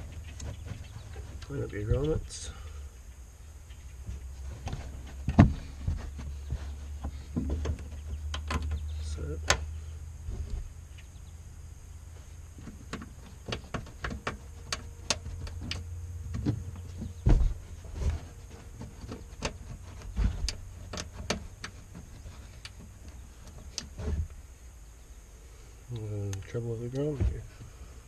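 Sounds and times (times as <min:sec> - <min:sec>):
steady low hum: 0:00.0 - 0:28.0
dull thumps: 0:04.0 - 0:10.8, 0:12.2 - 0:24.5.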